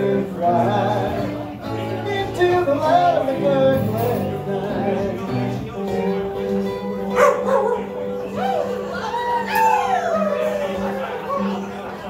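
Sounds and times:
person singing: 0:00.0 - 0:06.2
acoustic string band playing: 0:00.0 - 0:09.0.

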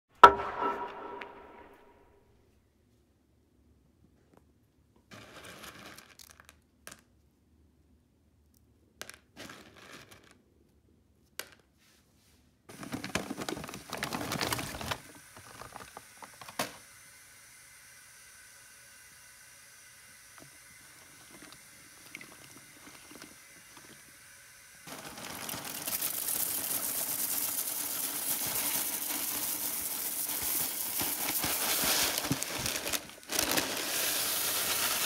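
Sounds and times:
plastic packaging crinkling: 0:12.7 - 0:16.6, 0:24.9 - 0:35.0
faint steady hiss: 0:14.3 - 0:35.0.

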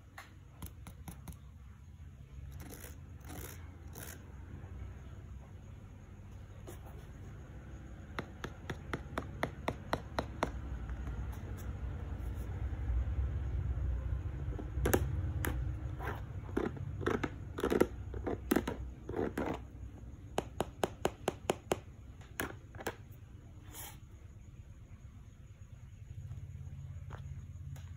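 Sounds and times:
clicks and scrapes on plastic: 0:00.2 - 0:01.5, 0:02.5 - 0:04.3, 0:14.5 - 0:23.2
fingers tapping on shoe sole: 0:08.1 - 0:11.4, 0:20.2 - 0:23.0.

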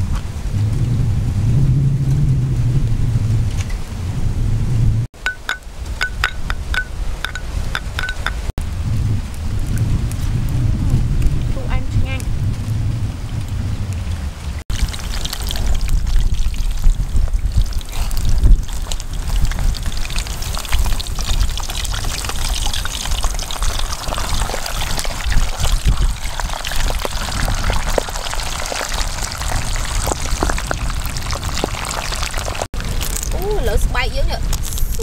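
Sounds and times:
low rumble: 0:00.0 - 0:05.1, 0:06.0 - 0:34.0
hot oil sizzling: 0:14.7 - 0:33.8.

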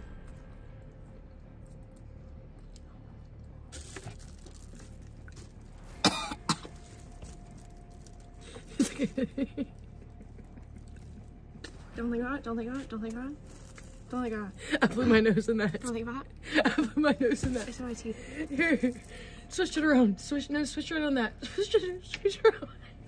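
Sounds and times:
person retching coughs: 0:06.0 - 0:06.8.

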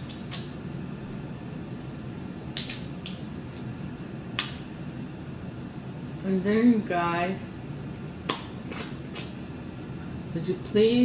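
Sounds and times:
steady low hum: 0:00.0 - 0:11.0
wet clicks of crab shell: 0:04.4 - 0:04.6.

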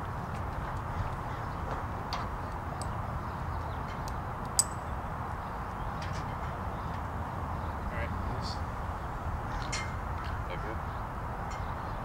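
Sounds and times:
rope and carabiner clicks: 0:04.0 - 0:04.8
carabiner metallic clink: 0:04.4 - 0:04.9.

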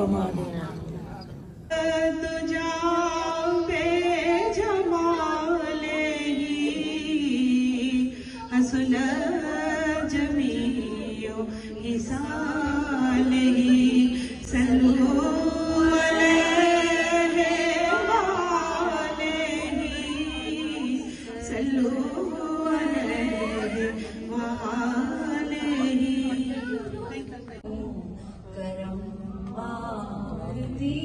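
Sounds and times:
women singing unaccompanied: 0:01.7 - 0:31.0.

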